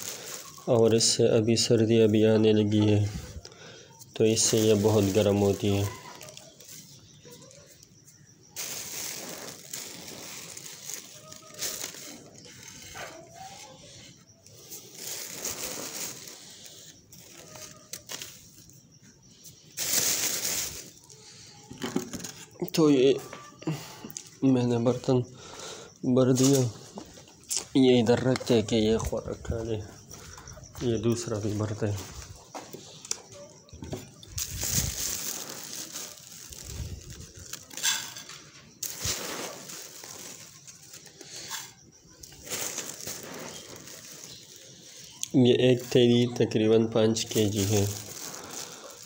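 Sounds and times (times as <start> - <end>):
feed pellets rustling: 0.0 - 3.1, 4.2 - 7.3, 8.1 - 18.7, 19.5 - 21.4, 34.2 - 46.3, 47.0 - 49.0
plastic sack crinkling: 0.0 - 3.4, 4.1 - 18.8, 19.4 - 21.2, 33.8 - 49.0.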